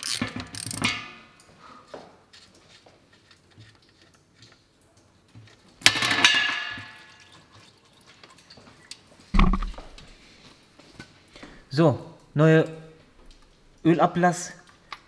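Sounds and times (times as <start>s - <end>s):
oil gushing into container: 7.0s - 10.1s
short thump: 9.4s - 10.0s.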